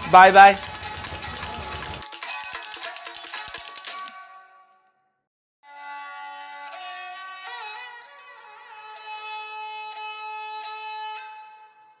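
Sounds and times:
violin-led instrumental music: 0:05.7 - 0:12.0.

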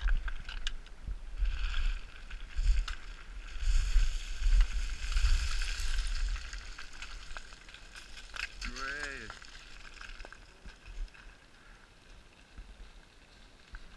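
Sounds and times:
stones clattering: 0:01.4 - 0:11.4
boots crunching through scree: 0:01.5 - 0:11.7.

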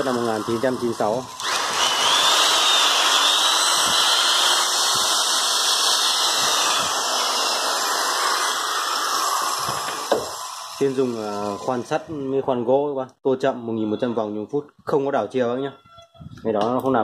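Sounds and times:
electric drill running: 0:00.0 - 0:12.0.

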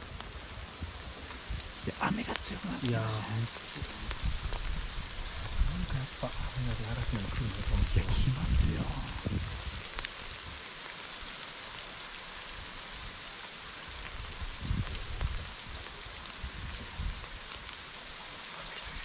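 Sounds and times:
low rumbles: 0:00.0 - 0:10.0
heavy rain falling: 0:00.0 - 0:19.0.

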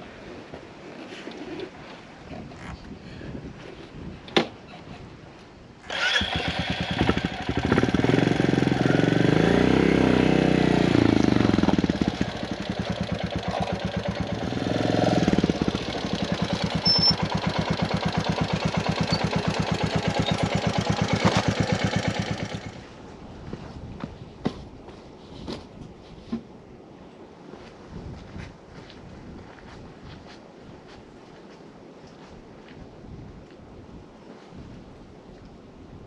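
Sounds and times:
motorcycle engine starting and revving: 0:05.8 - 0:23.0.

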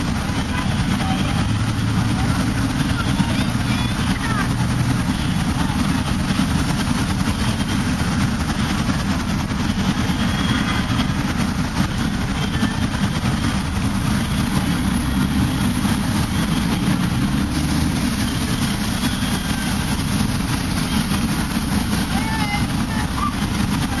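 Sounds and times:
city traffic rumble: 0:00.0 - 0:24.0.

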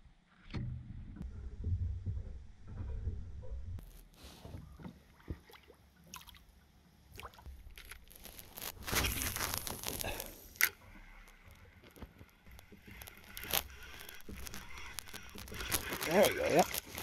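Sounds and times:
water dripping and splashing: 0:05.0 - 0:10.0.

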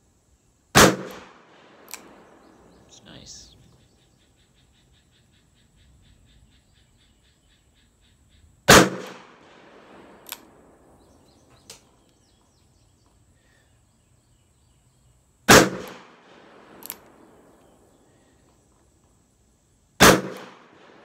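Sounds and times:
loud revolver shots: 0:00.7 - 0:02.9, 0:08.7 - 0:10.7, 0:15.5 - 0:17.5, 0:20.0 - 0:21.0
fainter sharp cracks: 0:00.8 - 0:02.4, 0:08.7 - 0:10.6, 0:15.5 - 0:17.3, 0:20.0 - 0:21.0.

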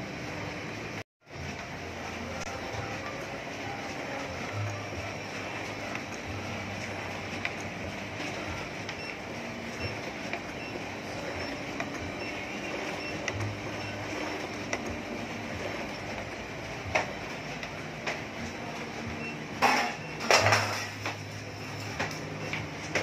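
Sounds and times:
printer mechanical whir: 0:00.0 - 0:23.0.

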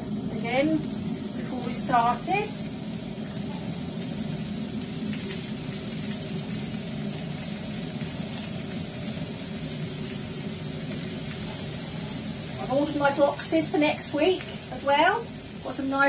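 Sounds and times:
leeks sizzling in oil: 0:00.0 - 0:16.0.

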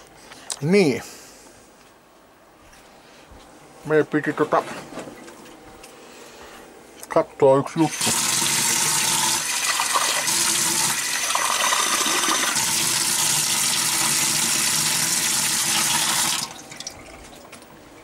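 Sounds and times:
water running from a tap: 0:07.9 - 0:17.1.

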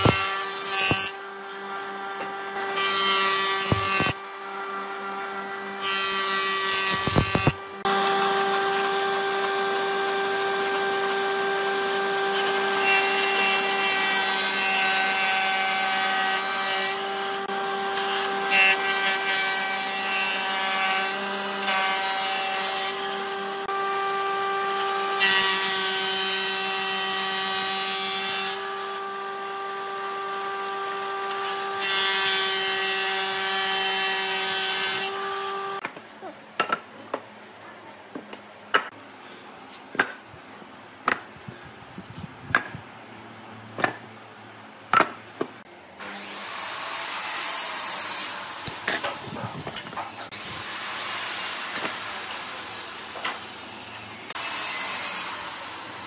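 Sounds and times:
wood planer whine: 0:00.0 - 0:35.8.

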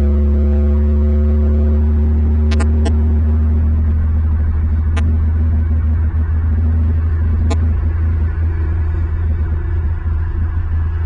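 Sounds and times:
steady low hum: 0:00.0 - 0:11.0
faint steady tones: 0:02.5 - 0:11.0.

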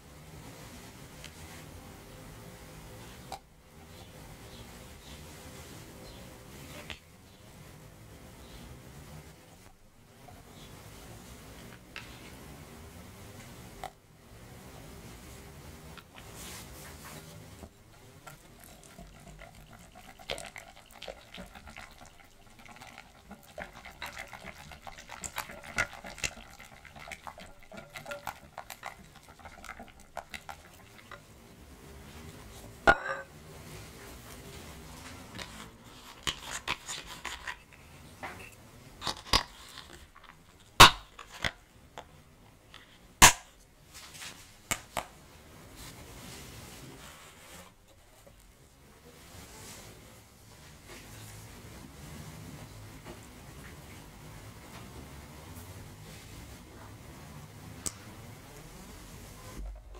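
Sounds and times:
whisk scraping glass bowl: 0:17.9 - 0:31.3.

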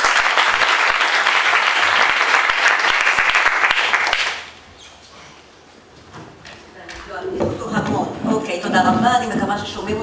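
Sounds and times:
audience applauding: 0:00.0 - 0:04.5.

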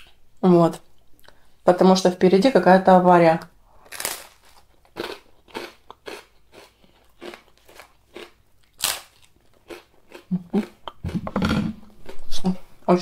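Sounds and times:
toast crunching while chewed: 0:03.8 - 0:12.2.

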